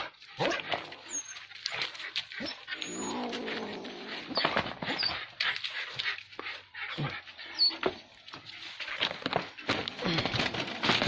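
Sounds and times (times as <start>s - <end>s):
dog growling: 2.4s - 5.0s.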